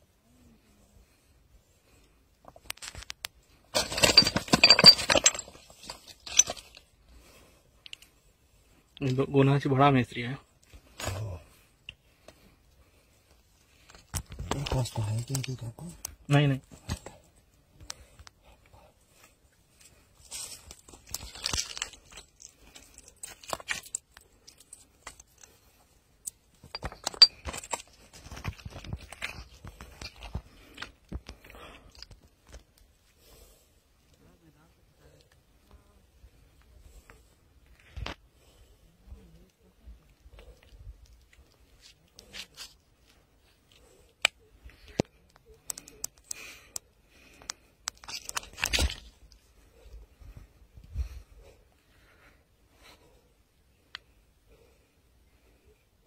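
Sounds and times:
fish handling rustles and crunches: 20.5 - 24.1.

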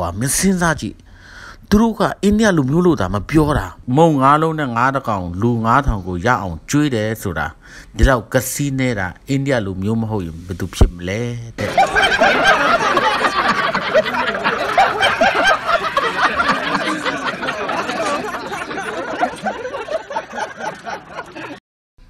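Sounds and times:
crowd laughing: 11.6 - 21.6.

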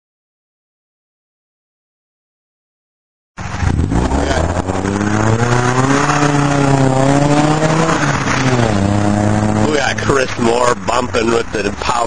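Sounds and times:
car accelerating past: 3.4 - 10.3.

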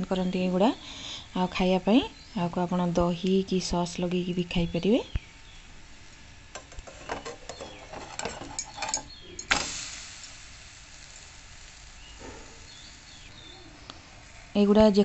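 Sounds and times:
bread sizzling in pan: 5.5 - 15.0
spatula scraping frying pan: 6.6 - 9.4.

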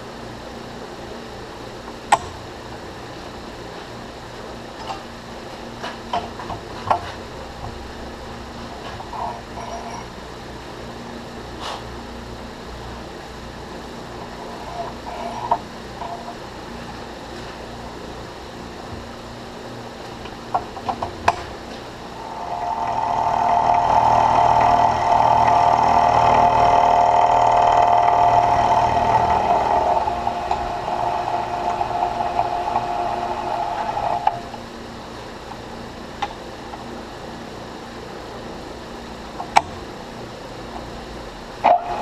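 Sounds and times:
milling machine low hum: 0.0 - 42.0
milling cutter high singing tone: 22.2 - 34.6.

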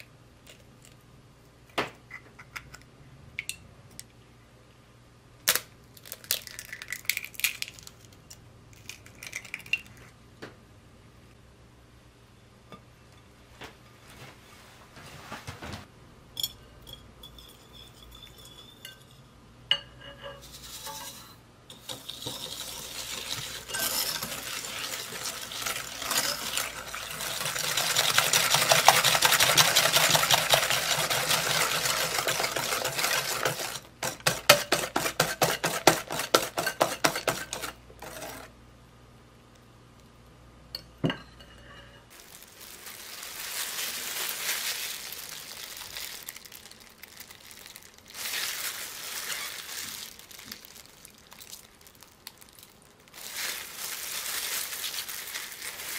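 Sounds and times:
glass bowls clinking: 16.4 - 28.1, 40.8 - 42.0
wire whisk scraping glass bowl: 20.0 - 38.5.

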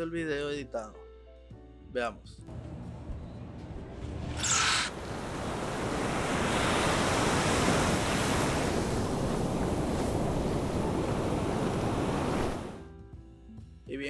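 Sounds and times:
ocean surf washing ashore: 4.6 - 12.8.

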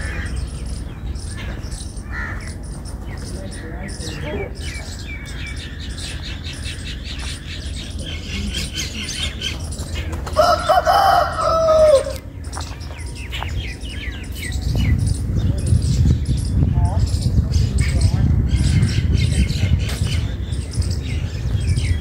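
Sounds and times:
rapid high-pitched chirping: 0.0 - 10.8, 12.4 - 22.0
rooster crowing: 10.4 - 12.2.

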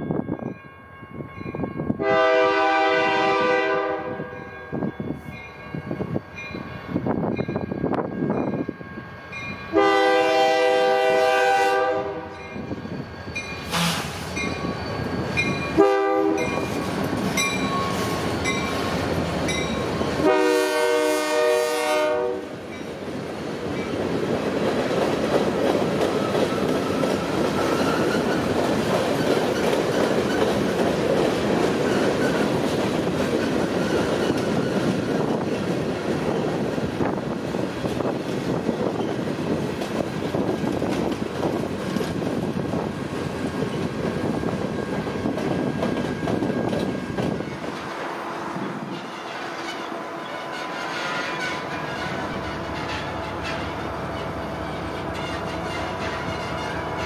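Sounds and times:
train rumble: 0.0 - 57.0
locomotive air horn blasts: 2.0 - 4.4, 9.7 - 12.4, 13.7 - 14.3, 15.8 - 16.6, 20.2 - 22.6
train wheel clatter: 22.7 - 48.2, 48.8 - 57.0.

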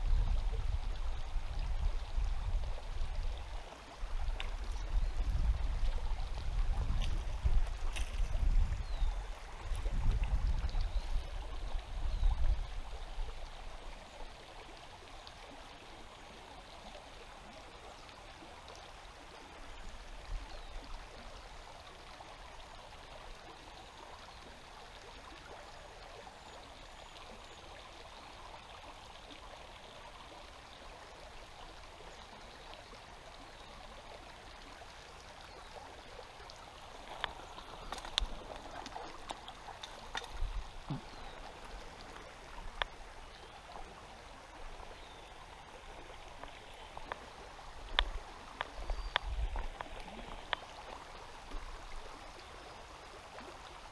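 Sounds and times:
river flowing over rocks: 0.0 - 53.9
low rumbling on microphone: 4.1 - 12.9.

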